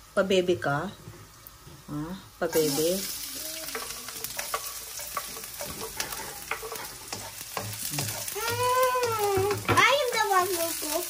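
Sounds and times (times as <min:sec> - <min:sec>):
garlic sizzling in hot oil: 0:00.0 - 0:11.0
wooden spatula scraping pan: 0:02.6 - 0:09.9.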